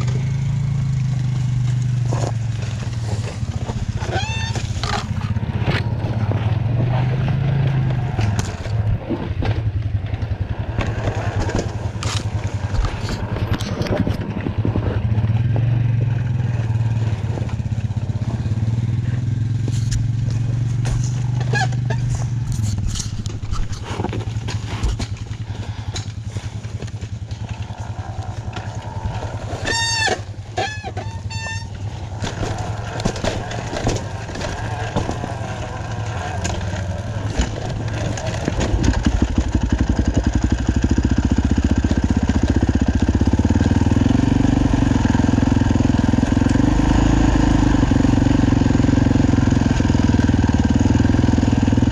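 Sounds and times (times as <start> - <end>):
dirt bike engine at low revs: 0.0 - 51.9
high squeaks: 3.9 - 5.2, 27.8 - 38.0
knocks and clatter of rocks: 7.9 - 15.0, 19.7 - 31.0, 32.1 - 40.6.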